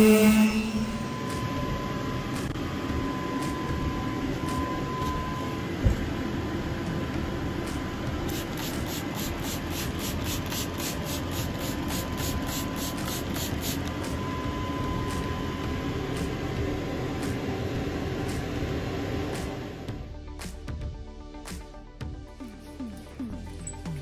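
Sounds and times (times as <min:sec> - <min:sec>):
steady background noise: 0:00.0 - 0:20.0
spray bottle hissing sprays: 0:08.3 - 0:14.0.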